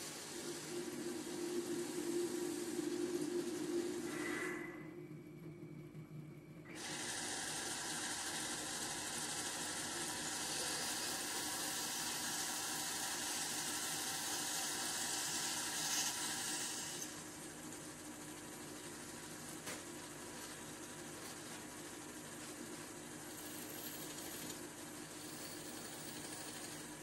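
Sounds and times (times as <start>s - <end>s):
lathe humming: 0.0s - 4.8s, 6.7s - 17.4s.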